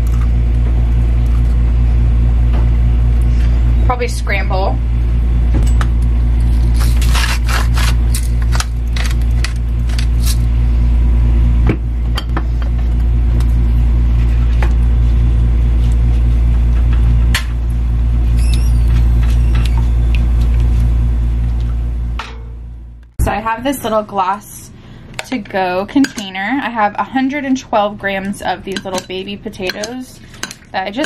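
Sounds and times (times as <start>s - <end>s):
microwave oven humming: 0.0s - 31.0s
kitchen utensils clicking: 28.2s - 31.0s.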